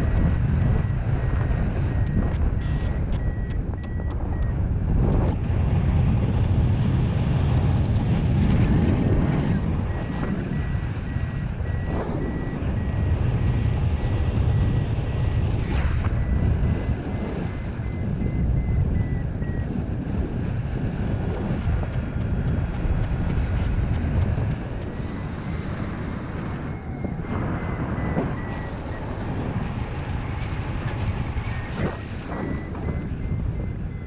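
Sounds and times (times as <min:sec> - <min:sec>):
variometer beeping: 0:00.0 - 0:05.5, 0:08.6 - 0:20.2, 0:20.8 - 0:34.0
wind rushing over microphone: 0:00.0 - 0:34.0.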